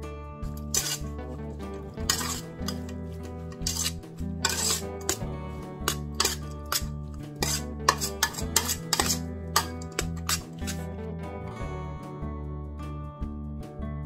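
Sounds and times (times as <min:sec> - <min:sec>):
background music: 0:00.0 - 0:14.0
metal spoon scraping in a pot: 0:00.6 - 0:10.9.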